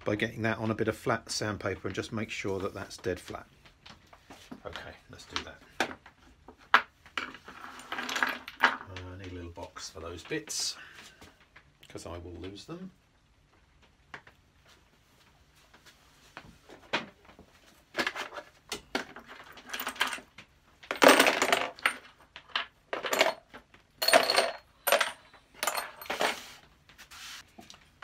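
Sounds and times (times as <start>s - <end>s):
metal parts clinking into plastic tub: 18.0s - 26.4s.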